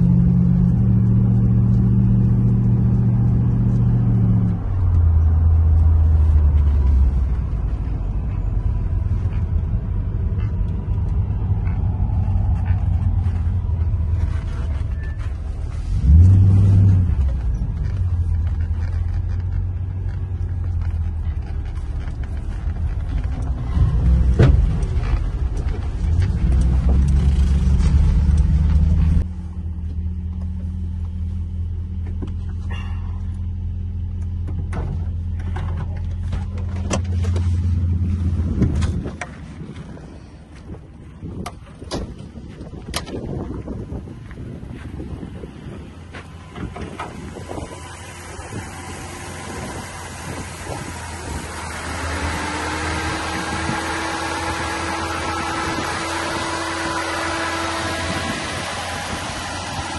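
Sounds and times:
car engine and road rumble: 0.0s - 59.9s
rattles and clicks: 16.6s - 29.3s.

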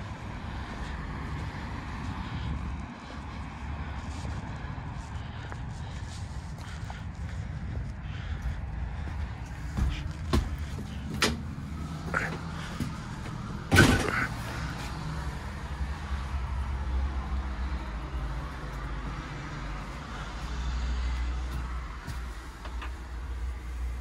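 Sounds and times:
diesel bus engine idling: 3.5s - 24.0s
loud clunk: 13.7s - 14.3s.

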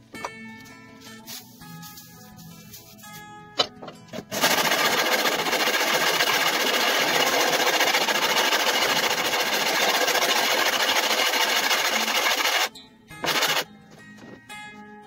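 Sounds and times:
metal scraping on sandpaper: 1.0s - 3.2s, 4.3s - 13.6s.

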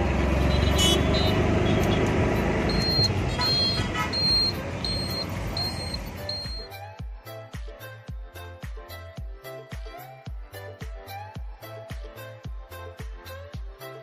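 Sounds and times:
auto-rickshaw engine running: 0.0s - 6.6s
road noise: 0.0s - 6.9s
short high beeps: 2.7s - 6.7s.

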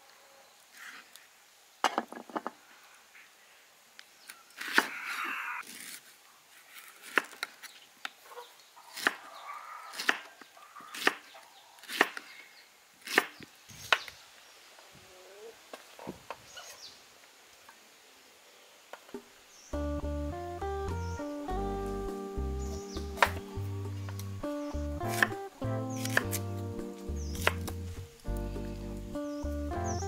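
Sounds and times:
knife slicing pineapple: 9.0s - 9.2s, 23.0s - 23.4s, 25.0s - 26.6s, 27.2s - 27.9s.

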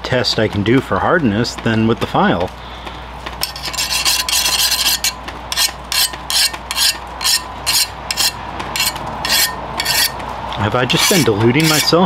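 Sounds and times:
file scraping steel blade: 3.4s - 10.2s, 10.9s - 12.0s.

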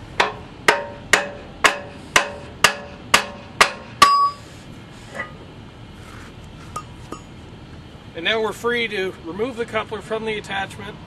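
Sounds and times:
hammer striking steel bar: 0.2s - 4.4s.

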